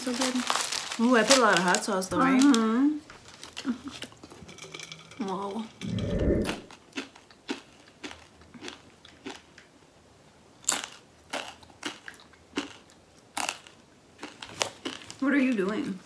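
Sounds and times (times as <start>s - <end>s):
person crunching a chip: 6.7s - 9.7s, 10.6s - 15.2s.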